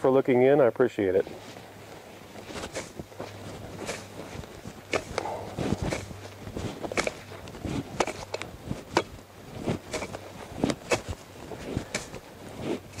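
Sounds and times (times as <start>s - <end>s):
tool chopping into soil: 4.8s - 13.0s.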